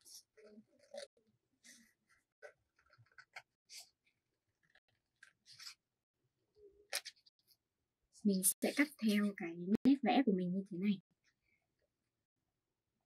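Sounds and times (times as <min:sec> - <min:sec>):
paper rustling: 0:00.0 - 0:05.8.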